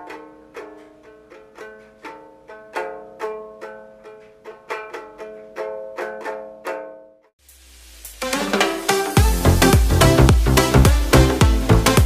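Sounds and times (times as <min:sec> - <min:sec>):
ukulele strummed chords: 0:00.0 - 0:07.3, 0:08.2 - 0:12.0.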